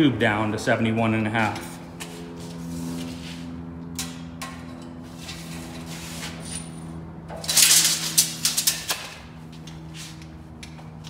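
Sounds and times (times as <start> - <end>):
steady low hum: 0.0 - 11.0
tape measure scraping on metal: 5.0 - 6.7.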